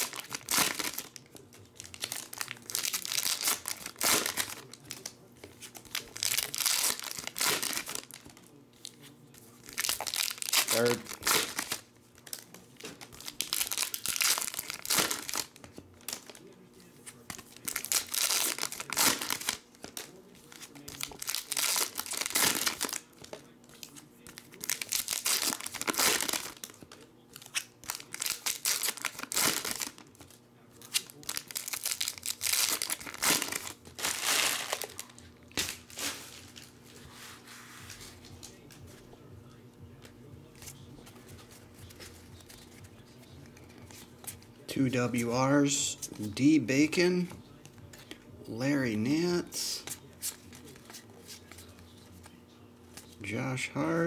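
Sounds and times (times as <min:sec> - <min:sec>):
foil wrappers torn and crinkled: 0:00.0 - 0:09.0, 0:09.6 - 0:16.6, 0:17.3 - 0:36.7.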